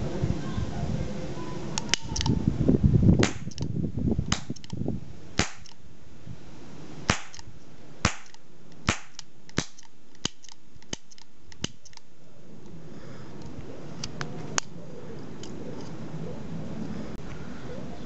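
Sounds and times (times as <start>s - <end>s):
toy cap gun cracks: 1.8s - 2.3s, 3.2s - 3.7s, 4.3s - 4.8s, 5.4s - 5.8s, 7.1s - 7.5s, 8.1s - 12.1s.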